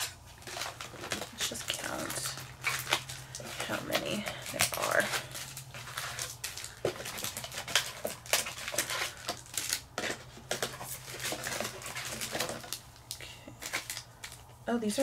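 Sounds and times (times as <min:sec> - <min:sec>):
foil packs crinkling: 0:00.0 - 0:15.0
low steady hum: 0:00.0 - 0:15.0.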